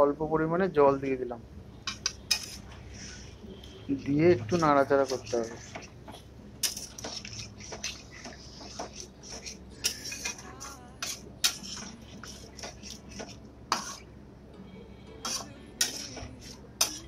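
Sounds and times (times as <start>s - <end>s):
metal spatula scraping a pan: 1.9s - 6.0s, 6.6s - 14.1s, 15.2s - 17.0s.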